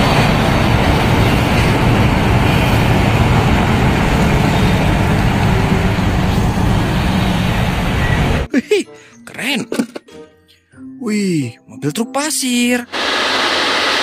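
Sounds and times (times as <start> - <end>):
machinery rumble: 0.0 - 8.5.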